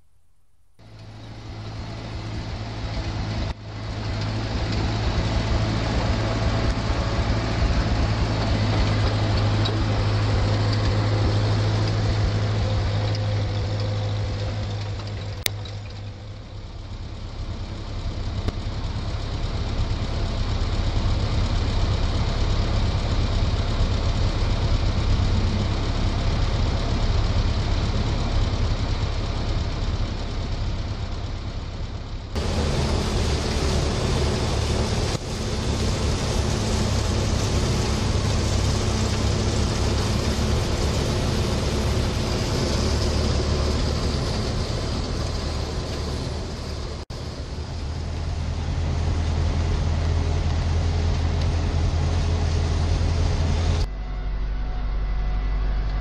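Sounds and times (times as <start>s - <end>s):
tractor and combine engine drone: 0.8s - 56.0s.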